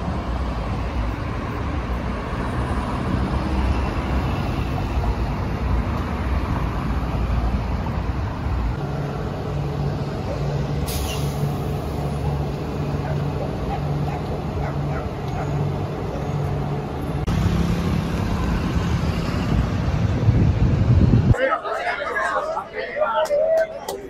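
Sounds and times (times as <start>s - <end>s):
cars driving past: 0.0s - 23.6s
bus engine idling: 0.0s - 24.0s
air brakes hissing: 10.8s - 12.3s.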